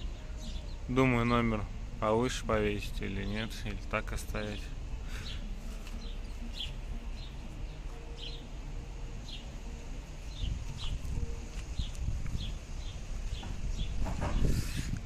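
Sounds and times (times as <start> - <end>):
bird chirping: 0.0 - 1.7, 4.3 - 14.6
low background rumble: 0.0 - 15.0.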